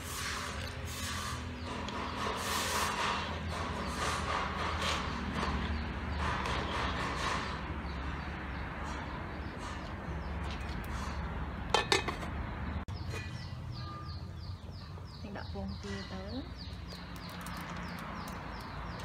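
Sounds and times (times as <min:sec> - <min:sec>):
metal lid clinking on pot: 0:11.7 - 0:12.3.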